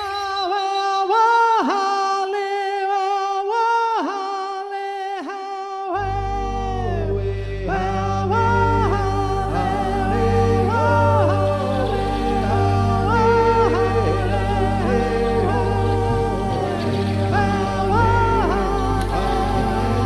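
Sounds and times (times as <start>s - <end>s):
solo voice singing long notes: 0.0s - 20.0s
low sustained drone: 6.1s - 20.0s.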